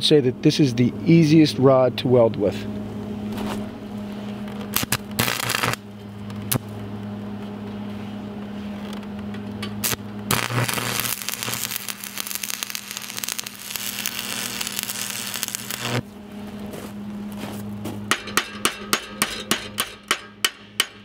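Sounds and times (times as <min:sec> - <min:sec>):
steady low hum: 0:00.0 - 0:21.0
welding arc crackling: 0:04.5 - 0:06.8, 0:09.6 - 0:16.2.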